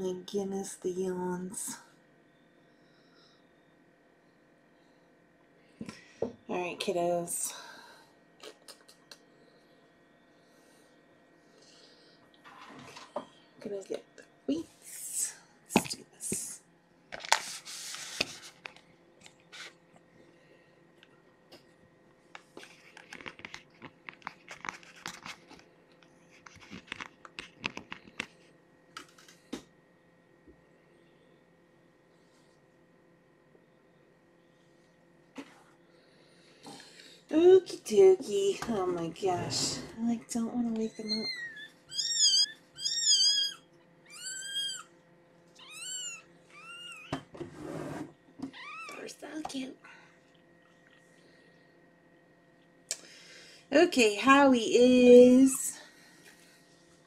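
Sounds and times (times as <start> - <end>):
paper towel rustling and crinkling: 17.2 - 18.7
small crackles and taps: 22.3 - 29.7
kitten mewing: 41.0 - 44.9, 45.6 - 47.1.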